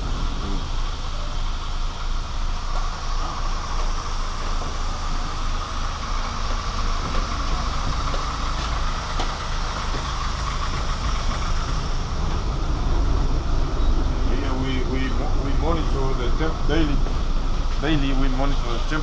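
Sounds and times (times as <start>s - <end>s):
mechanical drone with low rumble: 0.0s - 19.0s.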